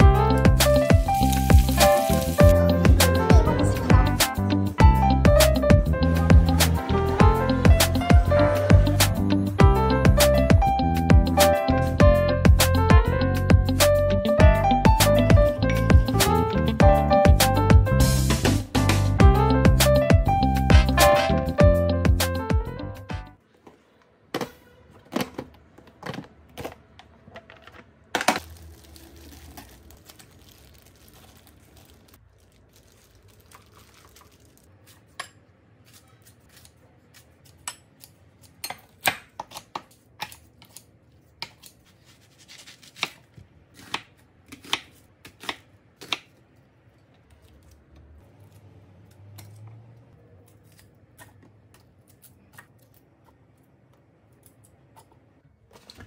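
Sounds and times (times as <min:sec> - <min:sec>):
kitchen scissors snipping: 0:34.9 - 0:46.4.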